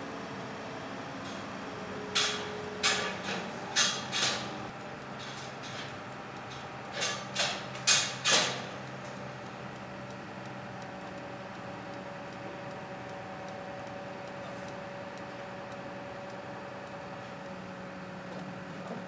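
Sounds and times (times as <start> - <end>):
crane engine running: 0.0 - 19.0.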